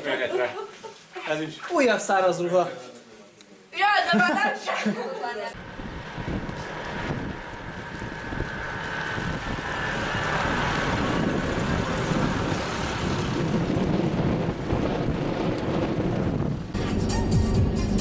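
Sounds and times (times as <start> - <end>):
wind buffeting microphone: 5.5 - 16.9
fire truck diesel engine passing: 5.6 - 18.0.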